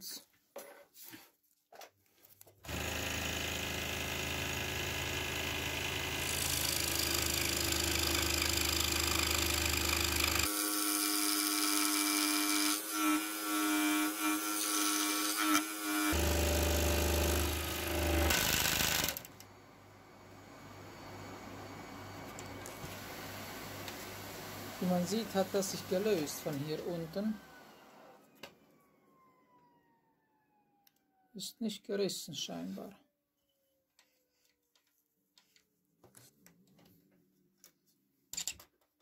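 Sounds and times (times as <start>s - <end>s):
scroll saw cutting wood: 2.7s - 19.4s.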